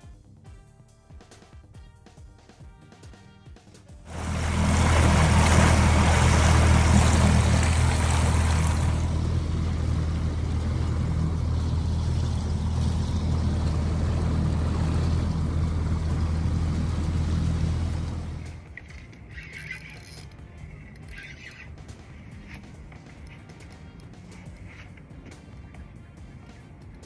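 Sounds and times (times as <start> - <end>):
outboard motor running: 4.0 - 27.0
rush of water and wind: 4.1 - 9.4.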